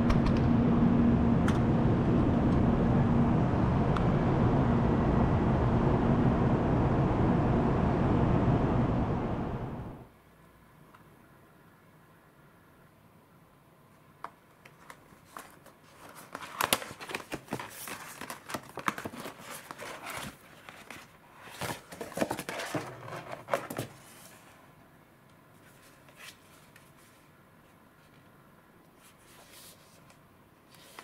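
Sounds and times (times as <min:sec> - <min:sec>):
plastic packaging crinkling: 0:14.7 - 0:23.9.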